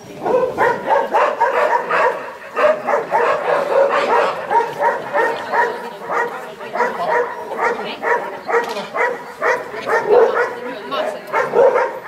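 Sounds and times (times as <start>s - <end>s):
dog barking rapidly: 0.2s - 10.7s, 11.3s - 12.0s.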